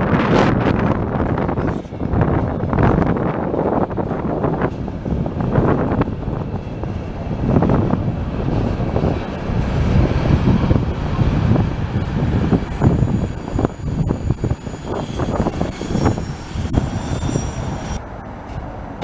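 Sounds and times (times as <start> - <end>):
freight train rumbling past: 0.0 - 19.0
faint high-pitched squealing: 12.7 - 18.0.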